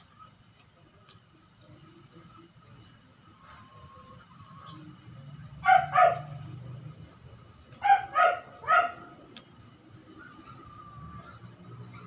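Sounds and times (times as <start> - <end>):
dog barking: 5.6 - 6.4, 7.8 - 9.2.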